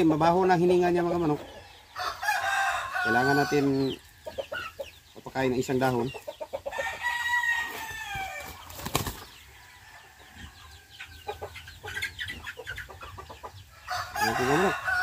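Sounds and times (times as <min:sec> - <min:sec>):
rooster crowing: 0:01.9 - 0:03.9, 0:06.8 - 0:08.5, 0:13.8 - 0:15.0.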